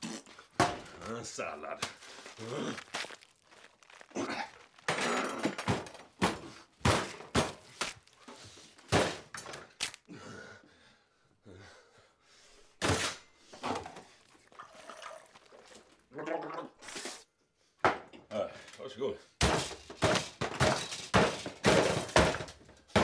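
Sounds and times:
vegetables crunching and tearing: 1.7s - 4.9s, 9.7s - 10.1s
heavy thumps and smashes: 4.5s - 8.1s, 8.8s - 9.6s, 19.4s - 23.0s.

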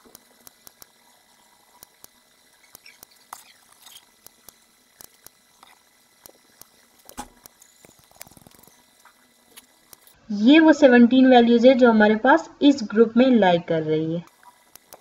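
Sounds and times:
stylus tapping and scratching tablet: 0.0s - 1.0s, 1.7s - 10.2s, 14.3s - 15.0s.

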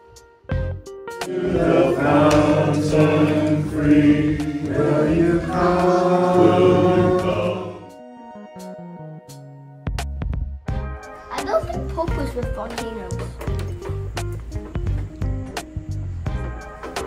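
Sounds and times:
soft instrumental notes: 0.6s - 15.5s
congregation singing a hymn: 1.2s - 8.0s.

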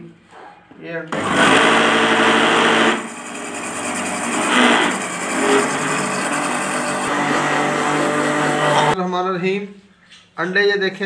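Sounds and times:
electric blender motor: 1.1s - 9.0s.

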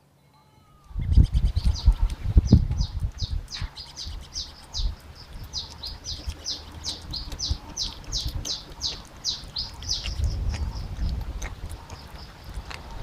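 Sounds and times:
small bird chirping: 0.6s - 13.0s
low rumble: 9.7s - 13.0s.

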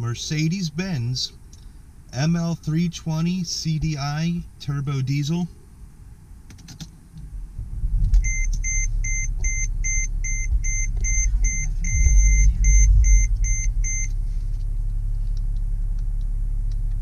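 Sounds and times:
diesel engine idling: 0.0s - 6.4s, 7.0s - 17.0s
dashboard warning chime beeping: 8.2s - 14.2s.

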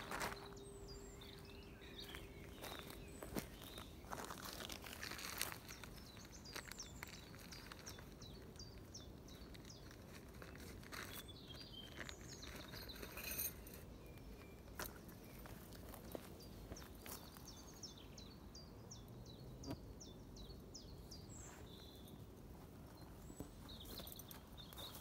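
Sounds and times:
boots crunching on twigs and leaves: 0.0s - 8.2s
small bird chirping: 0.0s - 22.2s, 23.0s - 25.0s.

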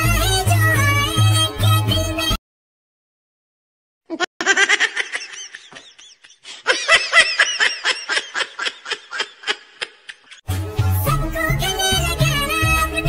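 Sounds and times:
high-pitched laugh: 4.1s - 10.4s.

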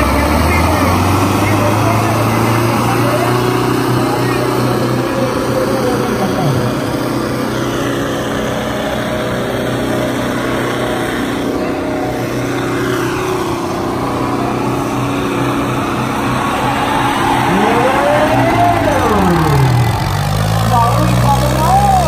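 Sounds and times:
tractor diesel engines under load: 0.0s - 22.0s
sliding tone rising and falling: 0.6s - 7.6s, 15.1s - 22.0s.

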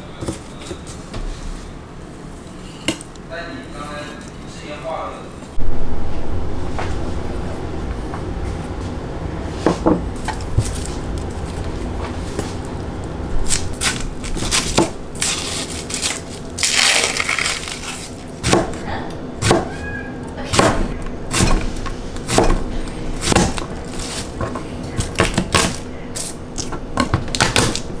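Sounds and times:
knife chopping on cutting board: 18.4s - 18.8s, 19.4s - 19.7s, 22.3s - 22.6s, 23.2s - 25.8s.

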